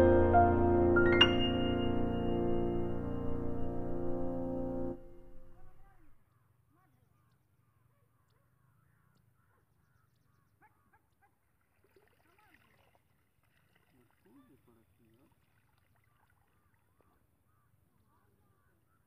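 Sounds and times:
background music: 0.0 - 6.0
faint bird calls: 5.4 - 11.4, 16.0 - 19.0.

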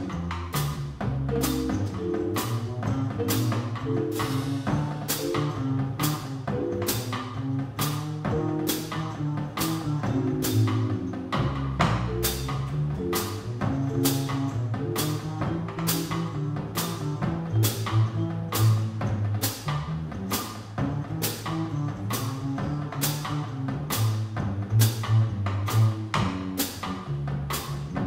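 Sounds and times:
drum kit: 0.0 - 28.0
upright bass: 0.0 - 28.0
keyboard: 1.3 - 5.7, 6.5 - 7.2.

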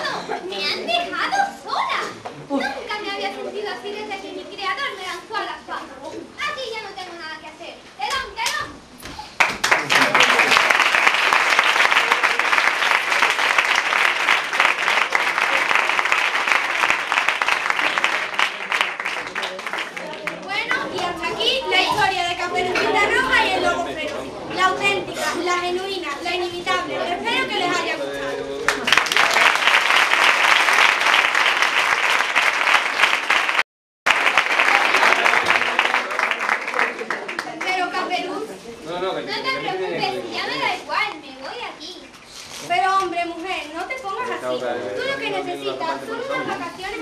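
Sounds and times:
audience applauding: 9.4 - 20.7, 28.7 - 38.0.

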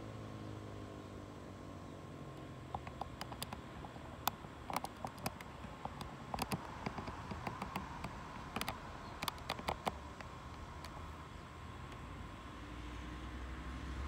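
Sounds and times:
faint steady hum: 0.0 - 14.0
light clicks and taps: 2.4 - 11.0.

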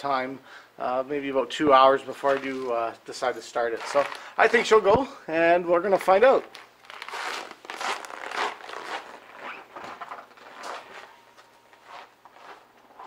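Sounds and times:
footsteps crunching on snow: 7.7 - 13.0.

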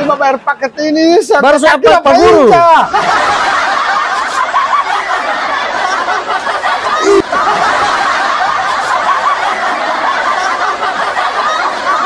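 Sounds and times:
person laughing: 6.4 - 7.8.

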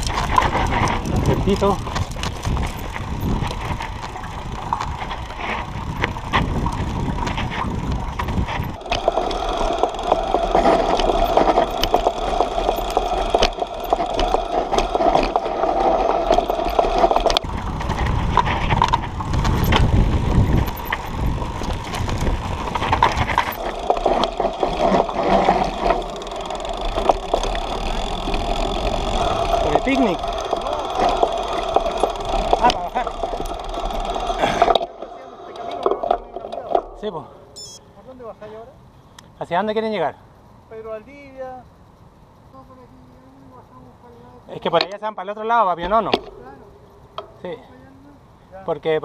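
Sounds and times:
bike rattling and knocking: 0.0 - 35.2
tyres crunching over dirt and stones: 0.0 - 37.2.

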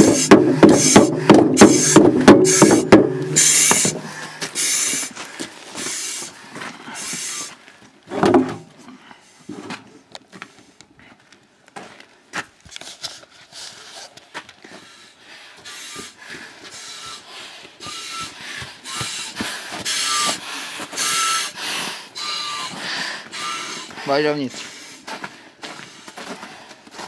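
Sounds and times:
short bump: 0.0 - 4.1, 8.1 - 8.7
footsteps on snow and concrete: 0.0 - 8.0, 9.2 - 15.0, 23.8 - 27.0.

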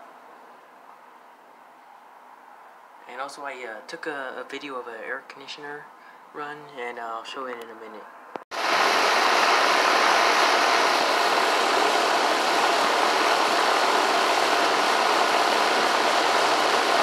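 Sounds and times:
air conditioner fan blowing: 8.5 - 17.0.

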